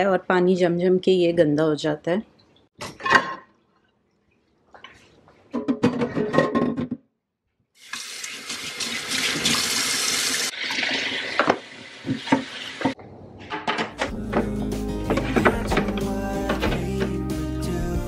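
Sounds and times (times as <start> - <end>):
tap water running into sink: 7.8 - 13.0
trays clattering: 13.4 - 17.2
trays knocking against sink: 13.6 - 17.2.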